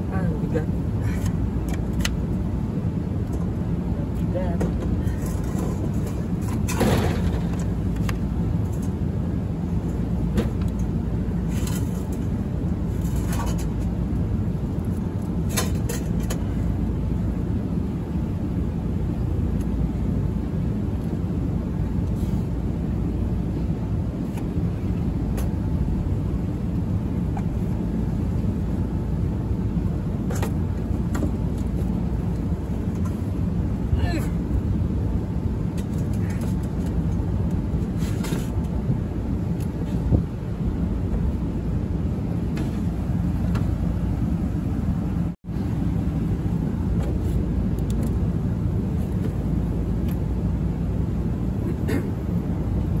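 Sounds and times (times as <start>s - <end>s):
low mechanical drone: 0.0s - 53.0s.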